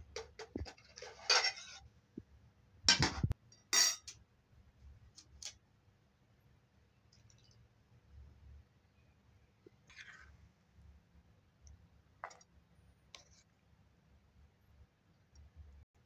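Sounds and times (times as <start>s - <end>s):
metal spoon scraping metal trays: 0.6s - 1.8s.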